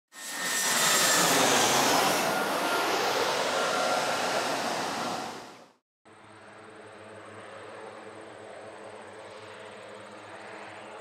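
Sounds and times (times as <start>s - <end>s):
aircraft engine roar: 0.1s - 11.0s.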